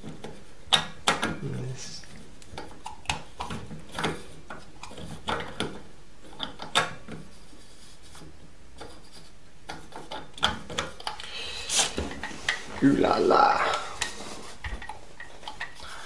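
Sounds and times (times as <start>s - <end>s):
plastic clicks and knocks: 0.0s - 1.4s, 2.4s - 7.3s, 9.6s - 11.2s.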